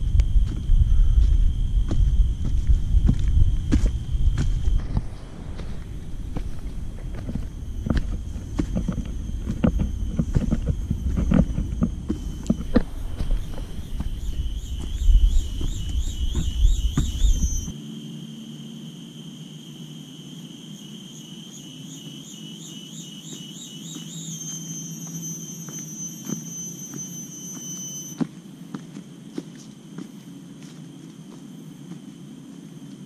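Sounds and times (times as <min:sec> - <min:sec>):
footsteps on dry leaves: 0:00.0 - 0:17.7
low rumble on microphone: 0:00.0 - 0:17.7
cicada buzzing: 0:00.0 - 0:33.0.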